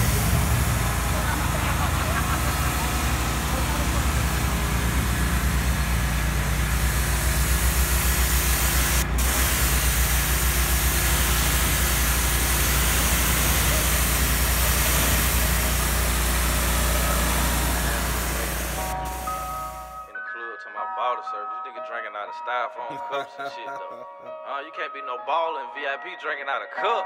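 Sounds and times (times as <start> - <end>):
engine running steadily: 0.0 - 19.9
pressure washer jet hissing: 0.0 - 20.0.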